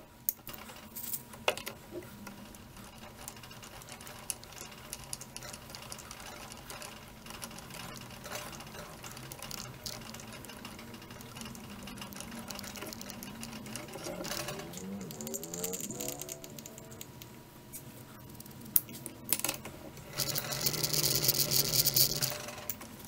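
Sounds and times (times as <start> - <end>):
steady mechanical hum: 0.0 - 23.0
rising whine: 11.6 - 18.8.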